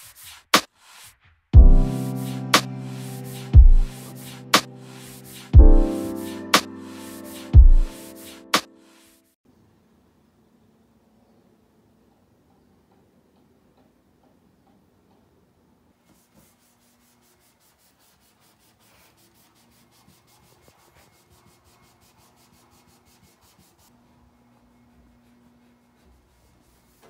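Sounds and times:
cloth rubbing on a desktop: 16.0s - 27.0s.

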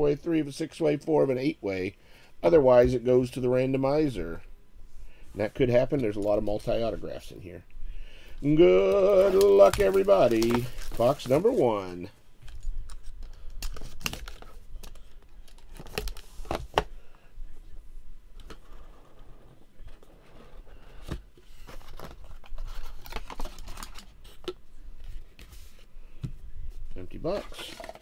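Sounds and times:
cellophane crinkling: 8.4s - 16.6s, 21.6s - 24.4s
cardboard box handled: 9.2s - 11.6s.

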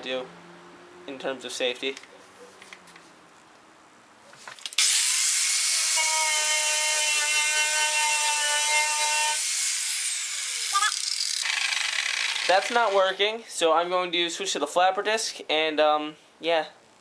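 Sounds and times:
grinder winding down: 4.8s - 13.0s
wire wheel grinder brushing metal: 4.8s - 13.2s.

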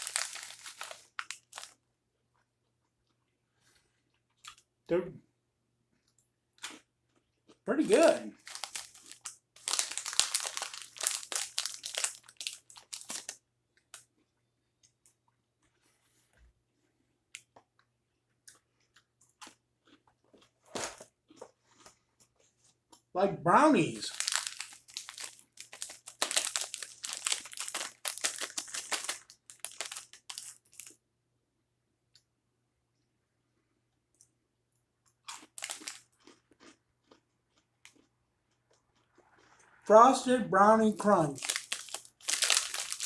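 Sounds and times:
plastic snack pouch crinkling: 0.0s - 1.8s, 7.8s - 14.1s, 23.9s - 31.0s, 35.3s - 38.0s, 41.0s - 43.0s.

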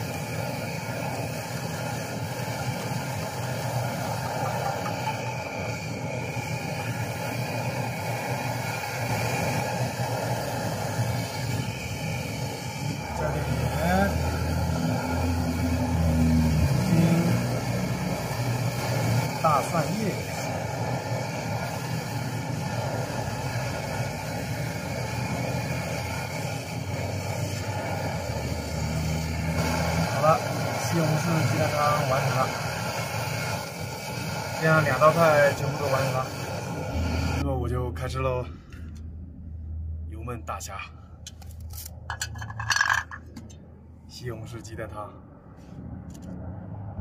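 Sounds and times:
gas stove hissing: 0.0s - 39.0s
low hum: 35.8s - 44.2s.

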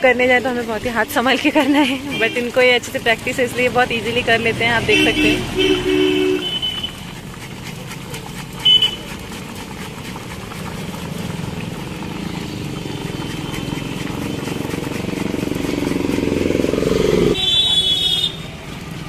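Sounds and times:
motorcycle engine hum: 0.0s - 19.0s
hot oil sizzling: 2.0s - 19.0s
banana scraping over a slicer: 12.0s - 17.4s.

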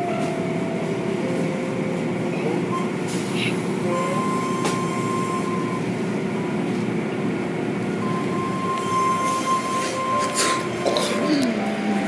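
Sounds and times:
high whine: 8.0s - 12.0s.

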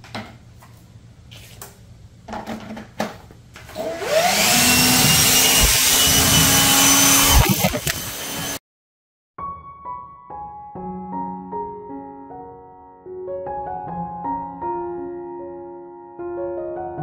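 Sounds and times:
lawn mower motor whining: 3.7s - 8.6s.

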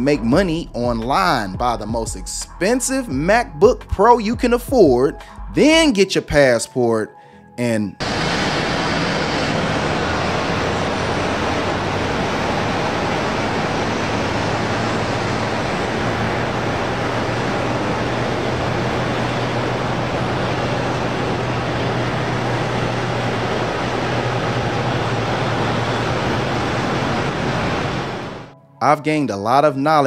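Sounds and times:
jet engines at takeoff power: 8.0s - 28.5s.

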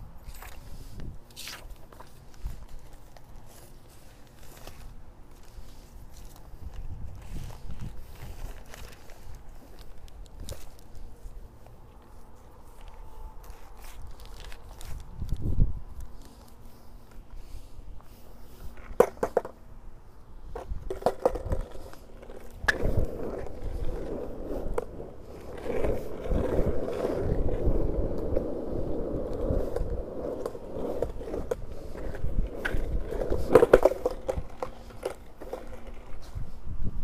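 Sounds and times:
skateboard wheels rolling on asphalt: 0.0s - 37.0s
skateboard clacks: 18.8s - 19.6s, 20.5s - 36.2s.

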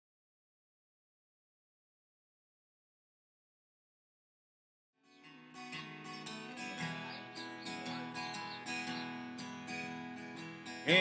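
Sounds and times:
acoustic guitar picked and strummed: 5.0s - 11.0s.

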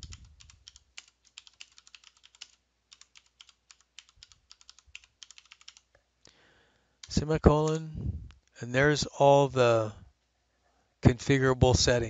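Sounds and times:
typing on computer keyboard: 0.0s - 6.0s.

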